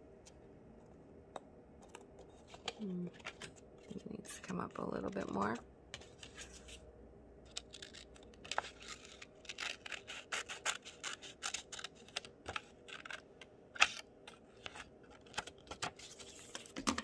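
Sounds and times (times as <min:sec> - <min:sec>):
scissors snipping paper: 0:07.5 - 0:13.2.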